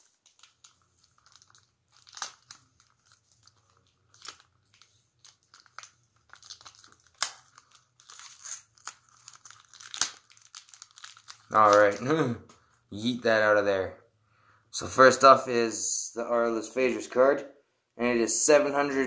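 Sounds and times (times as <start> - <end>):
plastic wrapper crinkling and tearing: 0.0 - 12.4.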